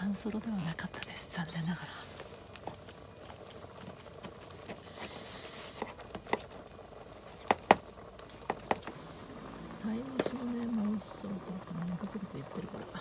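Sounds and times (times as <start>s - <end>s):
short soft hiss: 4.8s - 6.0s.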